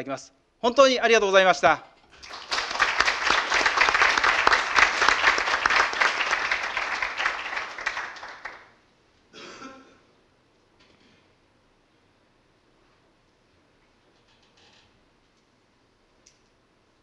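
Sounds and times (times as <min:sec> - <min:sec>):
group applause: 0:02.1 - 0:08.8.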